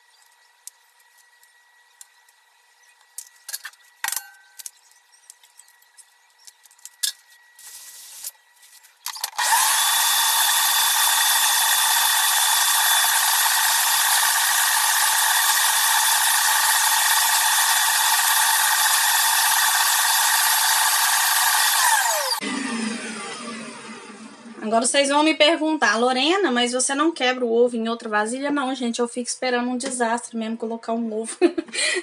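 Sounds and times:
stand mixer whining: 9.4s - 24.6s.

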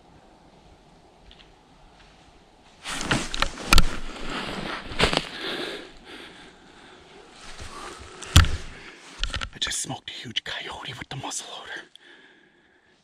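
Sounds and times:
rustling of gear being handled: 2.8s - 5.9s, 7.3s - 9.5s
sharp knocks: 8.3s - 9.5s.

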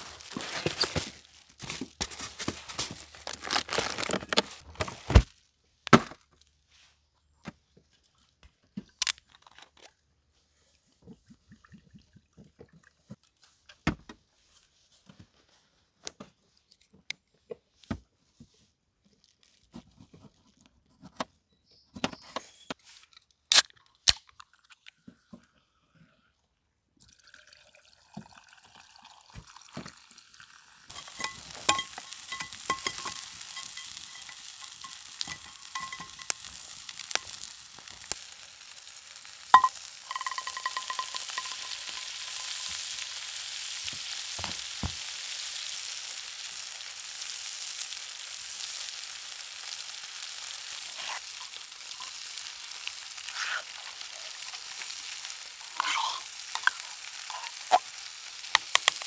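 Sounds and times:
food sizzling in a pan: 0.0s - 4.6s, 30.0s - 59.0s
utensil stirring clicks and scrapes: 30.9s - 38.3s, 39.5s - 43.0s, 50.8s - 52.2s, 53.2s - 59.0s.

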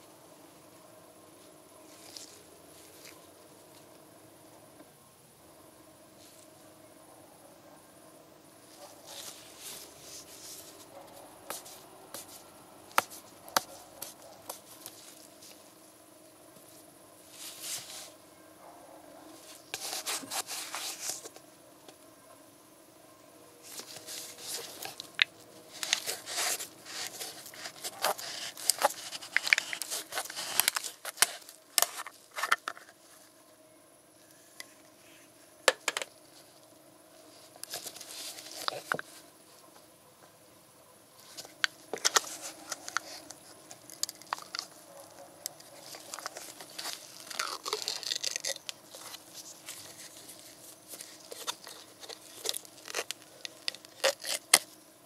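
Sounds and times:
foil seal peeling: 23.7s - 32.9s, 41.4s - 54.7s.

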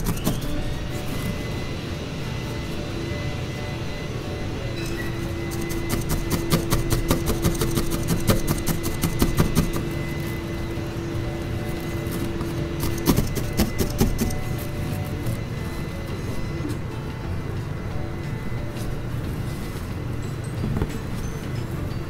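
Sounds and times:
felting needle poking wool: 5.5s - 9.9s, 12.1s - 14.6s.

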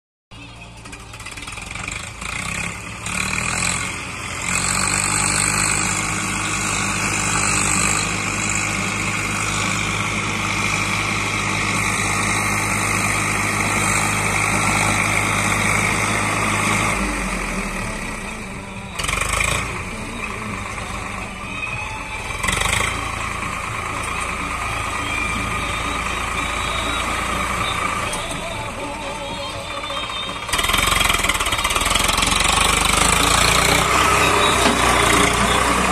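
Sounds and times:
tractor diesel engines running: 0.3s - 35.9s.

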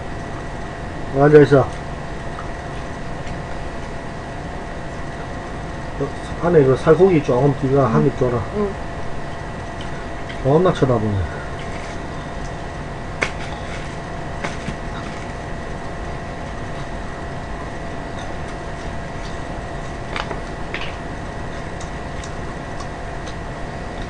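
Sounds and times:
whirring hum: 0.0s - 24.0s.

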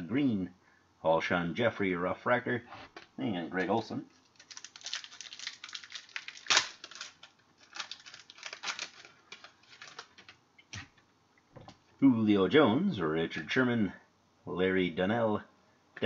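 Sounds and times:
cards clicking and rustling: 4.3s - 11.0s.

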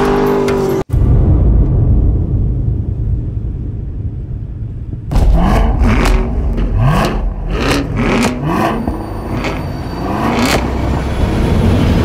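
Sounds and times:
car engine rumbling and revving: 4.2s - 12.0s
sharp exhaust cracks: 4.6s - 11.1s.

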